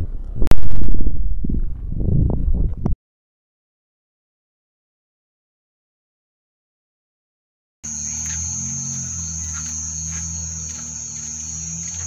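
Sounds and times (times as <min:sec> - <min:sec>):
crickets trilling: 0:07.8 - 0:12.0
low hum: 0:07.9 - 0:12.0.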